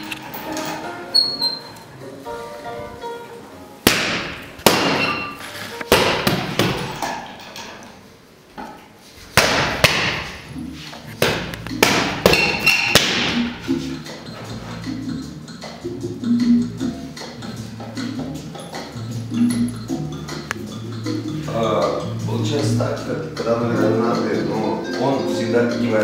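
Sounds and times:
punches thudding on heavy bag: 0:05.9 - 0:07.0.

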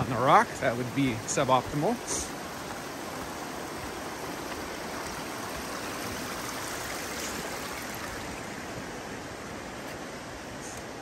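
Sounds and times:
river rushing: 0:00.0 - 0:11.0.

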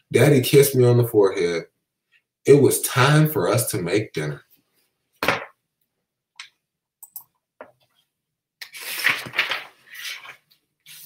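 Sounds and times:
paper pages rustling: 0:08.6 - 0:11.0
book swishing: 0:08.7 - 0:11.0.

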